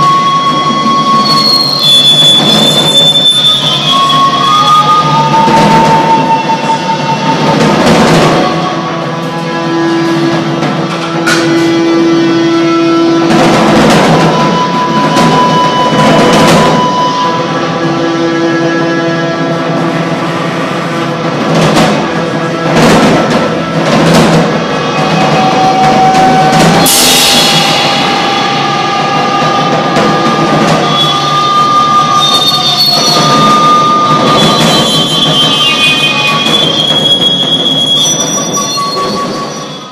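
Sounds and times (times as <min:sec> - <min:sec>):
drums and metal crashes: 0:00.1 - 0:09.0, 0:13.0 - 0:17.2, 0:19.8 - 0:39.8.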